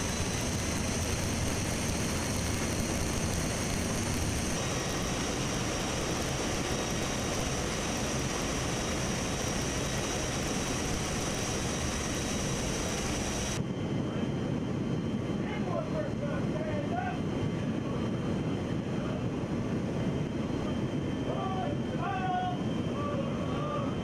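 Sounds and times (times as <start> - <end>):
high whine: 0.0 - 13.7
jet engine noise: 0.0 - 24.0.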